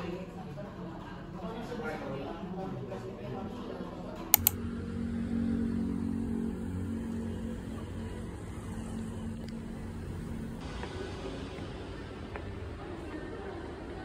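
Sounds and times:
sharp clicks: 4.4s - 4.6s.

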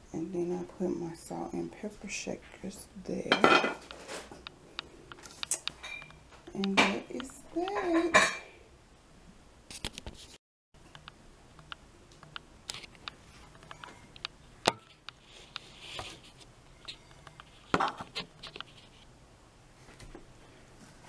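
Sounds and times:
tableware clicking and knocking: 3.3s - 4.1s.

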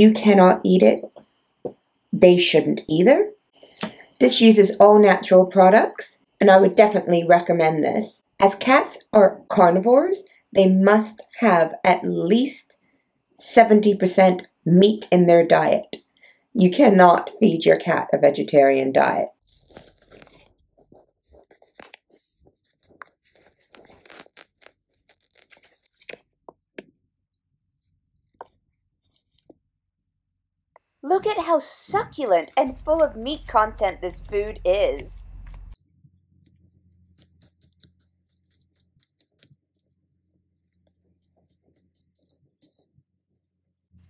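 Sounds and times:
plastic pouch tearing open: 19.6s - 20.5s, 21.4s - 26.3s
wet food squishing: 32.6s - 35.8s, 37.2s - 42.8s.

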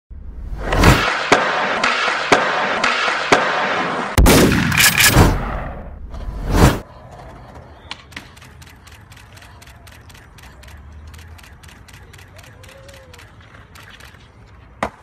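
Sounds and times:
whooshes: 0.1s - 6.8s
sharp clicks: 7.9s - 14.2s.

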